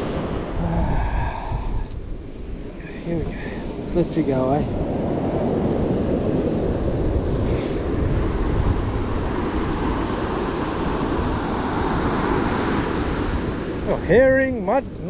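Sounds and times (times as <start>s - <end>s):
surf breaking on beach: 0.0s - 15.0s
wind rumbling on microphone: 0.0s - 15.0s.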